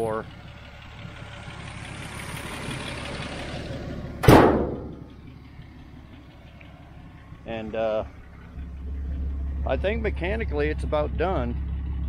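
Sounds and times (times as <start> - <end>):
vehicle noise: 0.0 - 12.0
car door slamming: 4.2 - 5.2.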